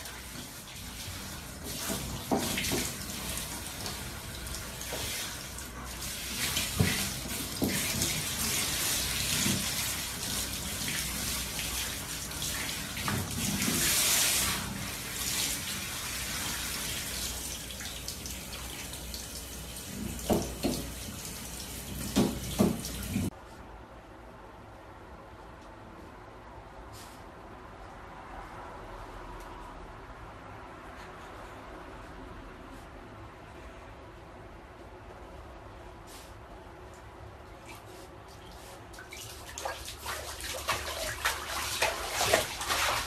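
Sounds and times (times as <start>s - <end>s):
shower water spraying: 0.0s - 23.3s, 37.7s - 43.0s
knocks and splashes: 1.6s - 4.0s, 6.3s - 10.0s, 20.0s - 21.0s, 22.0s - 23.3s, 39.0s - 43.0s.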